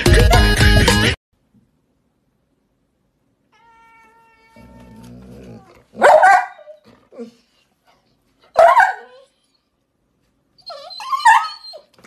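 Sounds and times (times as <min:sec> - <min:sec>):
dog growling: 0:04.5 - 0:06.0
dog barking: 0:06.0 - 0:06.8, 0:08.5 - 0:09.3.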